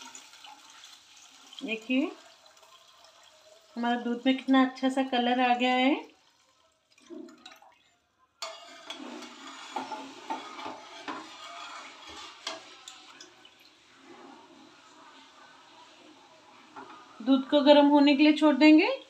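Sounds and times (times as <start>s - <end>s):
milk sloshing in a pan: 0.0s - 17.8s
ladle clinking against pan: 8.4s - 13.1s.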